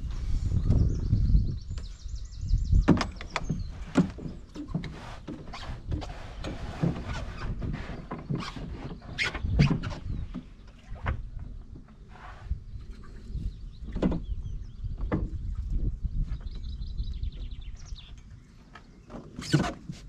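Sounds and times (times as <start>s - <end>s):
knocks and thumps in canoe: 2.6s - 12.4s, 13.8s - 16.7s
hull bumping wooden boards: 2.8s - 12.0s.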